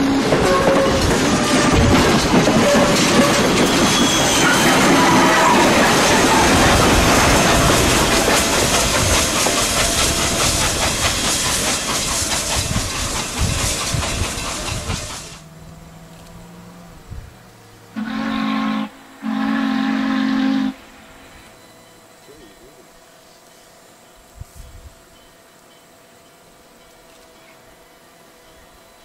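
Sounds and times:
distant steam whistle blasts: 0:00.0 - 0:07.0, 0:17.8 - 0:26.0
steam hissing: 0:00.0 - 0:15.6
train wheel clatter: 0:00.0 - 0:16.5
steam locomotive exhaust rush: 0:00.0 - 0:29.0.

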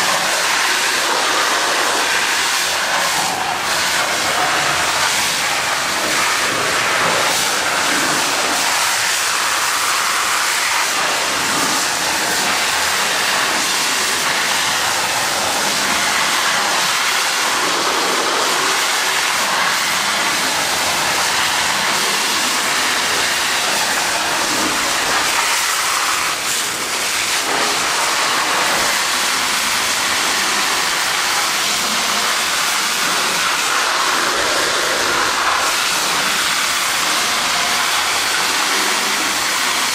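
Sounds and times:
water jet hissing: 0:00.0 - 0:39.9
water splashing on steel tracks: 0:00.0 - 0:39.9.

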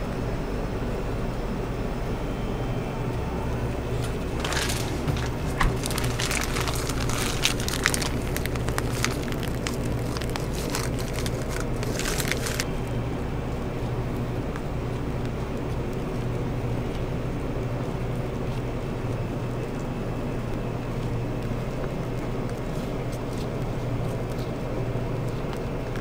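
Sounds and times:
low hum of equipment: 0:00.0 - 0:26.0
crackling and sharp clicks: 0:04.0 - 0:12.7.

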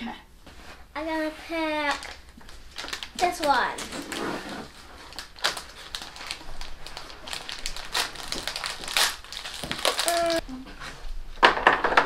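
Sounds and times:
plastic wrapper crinkling: 0:01.8 - 0:10.4.

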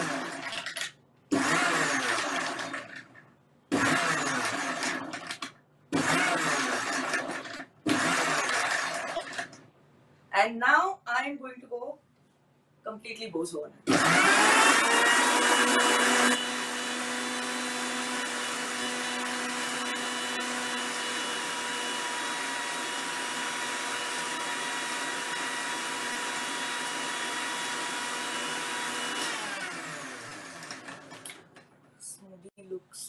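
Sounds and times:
electric mixer grinder blending: 0:00.0 - 0:03.1, 0:03.7 - 0:09.6, 0:13.9 - 0:31.4.

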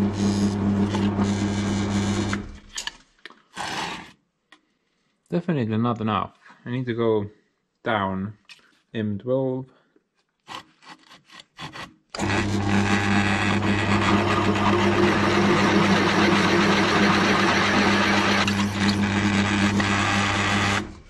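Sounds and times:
drill press boring into metal: 0:12.2 - 0:21.0.

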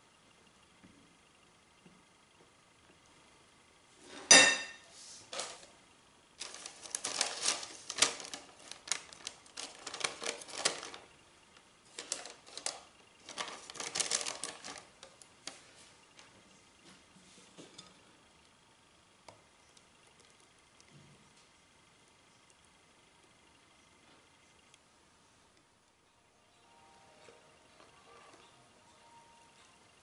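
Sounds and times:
sharp clink: 0:04.3 - 0:04.8
parchment paper crinkling: 0:06.4 - 0:16.0.

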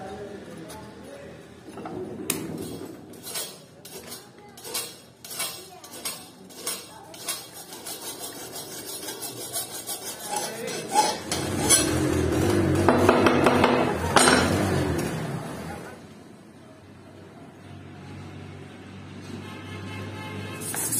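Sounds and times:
file rasping on steel: 0:03.1 - 0:13.2, 0:20.6 - 0:20.9.

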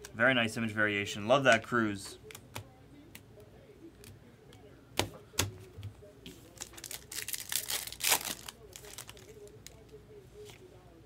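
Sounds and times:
foil wrapper crinkling: 0:06.4 - 0:09.8.

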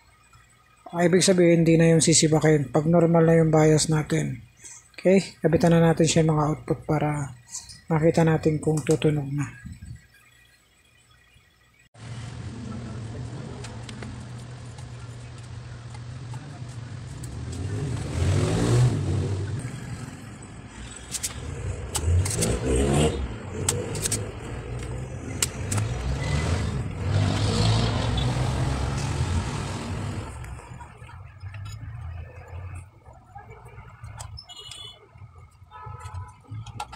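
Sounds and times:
vehicle engines: 0:12.0 - 0:36.9
sharp clicks: 0:20.9 - 0:22.6, 0:23.6 - 0:26.2.

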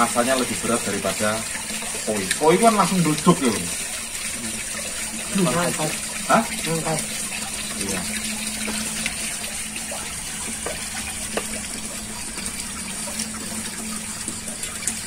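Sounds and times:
water pouring into pond: 0:00.0 - 0:15.0.

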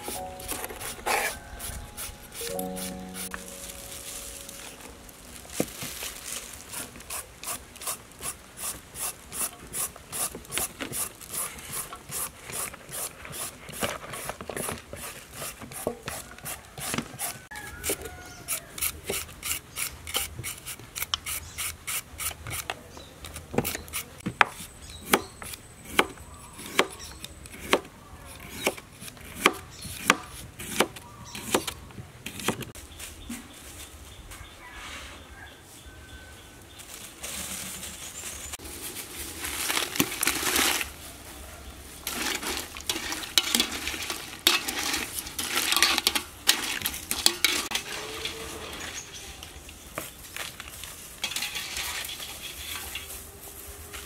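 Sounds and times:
hand shredder rasping vegetables: 0:06.6 - 0:22.7, 0:42.0 - 0:48.3.

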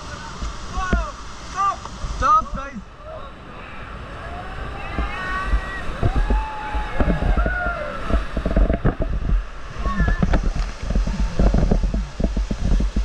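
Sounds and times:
river water rushing and splashing: 0:00.0 - 0:13.0
wind rumble on microphone: 0:03.6 - 0:13.0
people shouting: 0:04.1 - 0:08.2.

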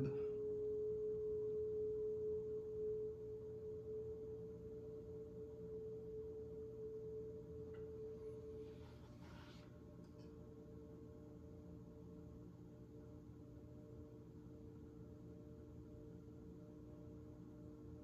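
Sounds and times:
potter's wheel motor whine: 0:00.0 - 0:08.6.

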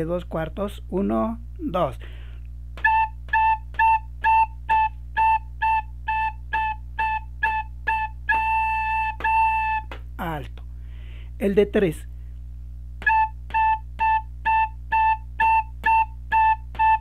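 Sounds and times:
recorder playing notes: 0:02.8 - 0:10.0, 0:13.0 - 0:17.0.

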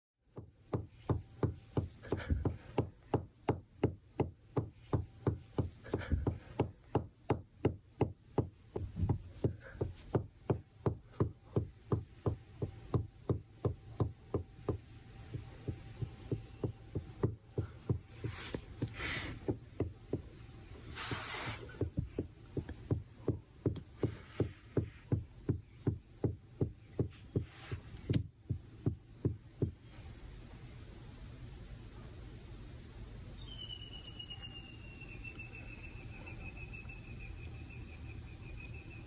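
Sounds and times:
hand patting dog: 0:00.4 - 0:20.4
fur and bedding rustling: 0:18.0 - 0:19.2, 0:20.3 - 0:22.2, 0:27.2 - 0:28.1.

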